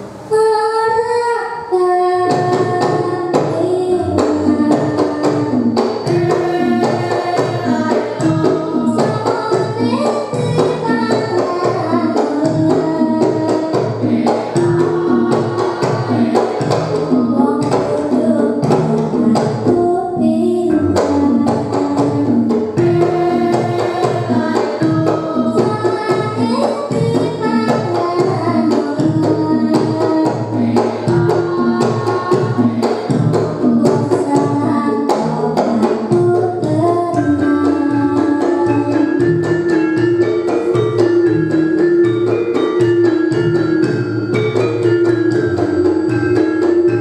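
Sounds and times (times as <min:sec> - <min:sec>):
girl singing: 0:00.3 - 0:39.6
hand drum: 0:02.1 - 0:47.0
bronze metallophones: 0:20.7 - 0:47.0.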